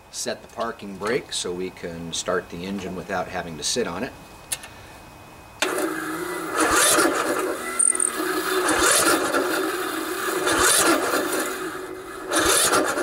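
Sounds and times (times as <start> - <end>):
electric starter cranking engine: 5.6 - 13.0.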